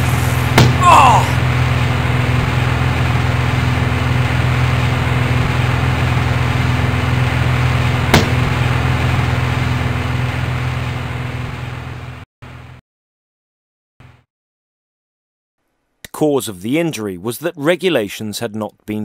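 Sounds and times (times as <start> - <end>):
low mechanical hum: 0.0 - 12.7.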